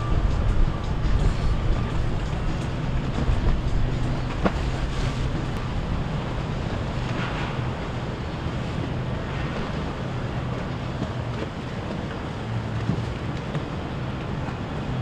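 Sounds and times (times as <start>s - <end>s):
motorboat engine drone: 0.0s - 15.0s
water noise: 0.0s - 15.0s
wind: 0.0s - 15.0s.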